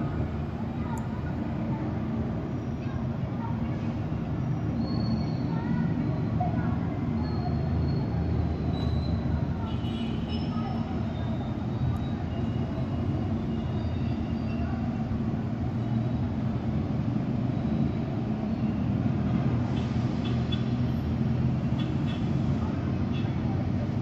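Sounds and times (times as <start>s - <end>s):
distant city traffic rumble: 0.0s - 24.0s.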